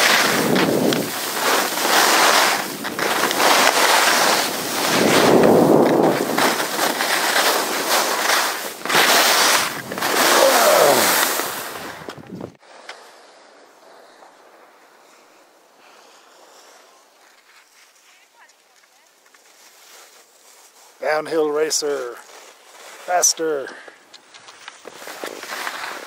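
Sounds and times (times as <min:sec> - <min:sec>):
wind on microphone: 0:00.0 - 0:01.4, 0:02.5 - 0:06.8, 0:09.6 - 0:12.6
skis scraping on snow: 0:00.0 - 0:26.0.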